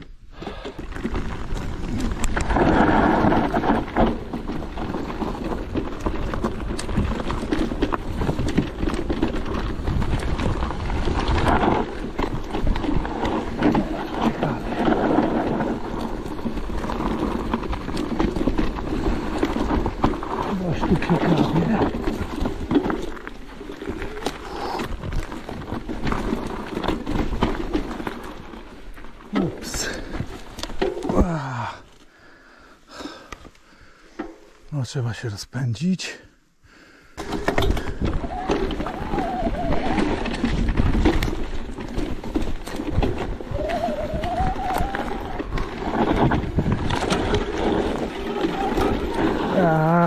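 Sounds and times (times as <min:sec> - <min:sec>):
mountain bike rattling: 0:00.0 - 0:34.7, 0:36.8 - 0:50.0
wind buffeting microphone: 0:37.5 - 0:50.0.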